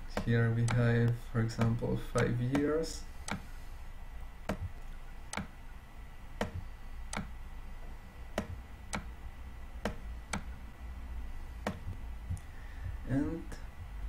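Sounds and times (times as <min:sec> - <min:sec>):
faint low hum: 0:00.0 - 0:14.0
light sharp clicks: 0:00.1 - 0:02.7.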